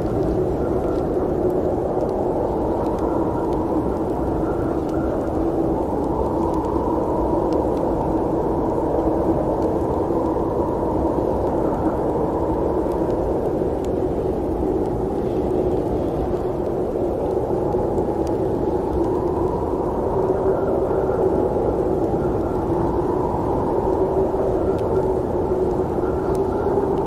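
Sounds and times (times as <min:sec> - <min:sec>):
faint clicks: 0:00.0 - 0:10.7, 0:11.4 - 0:20.2.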